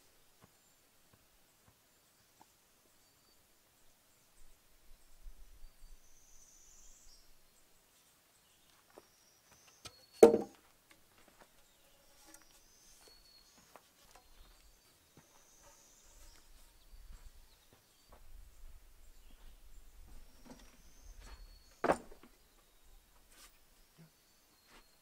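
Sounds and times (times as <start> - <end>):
faint bird chirps: 1.9 - 10.2, 11.3 - 25.0
log knocking on wood: 10.2 - 10.6.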